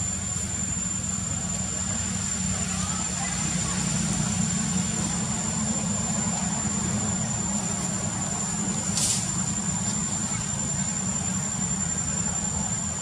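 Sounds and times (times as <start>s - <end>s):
low continuous rumble: 0.0s - 13.0s
short hiss: 8.9s - 9.4s.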